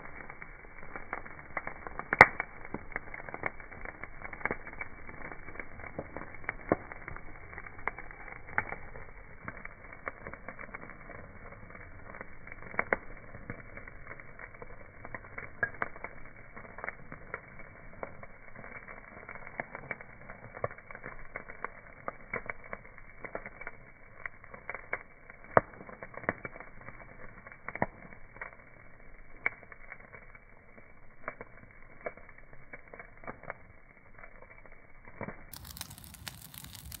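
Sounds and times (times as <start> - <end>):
flame rushing: 0.0 - 21.8, 35.1 - 37.0
burning wood popping and snapping: 0.0 - 37.0.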